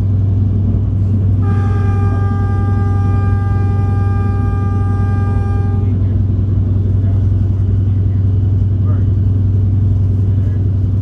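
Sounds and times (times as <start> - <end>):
train low rumble: 0.0 - 11.0
train horn long note: 1.4 - 6.0.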